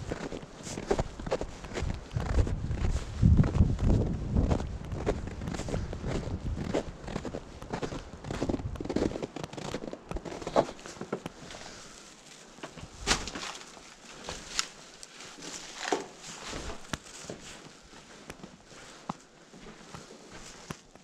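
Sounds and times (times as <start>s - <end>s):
footsteps crunching through snow: 0.0s - 21.0s
crunches and cracks of rubble: 7.2s - 18.4s.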